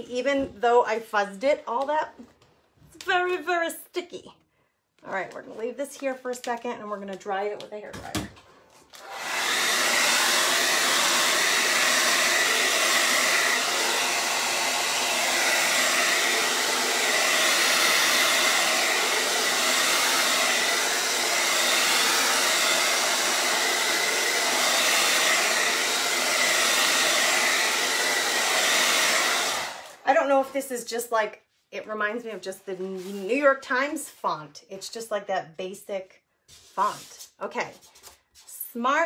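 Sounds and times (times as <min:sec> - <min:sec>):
hair dryer blowing: 0:08.2 - 0:30.6.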